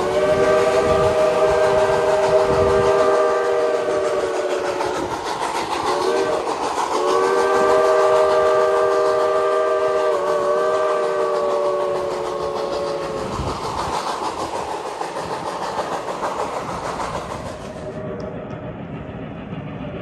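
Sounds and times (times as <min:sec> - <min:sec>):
steam whistle chord: 0:00.0 - 0:05.0, 0:05.9 - 0:13.3
train cars clickety-clack on rails: 0:00.0 - 0:20.0.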